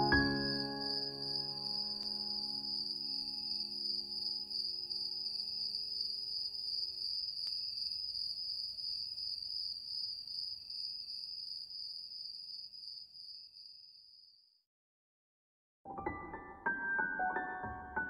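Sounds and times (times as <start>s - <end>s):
crickets trilling: 0.0s - 14.4s.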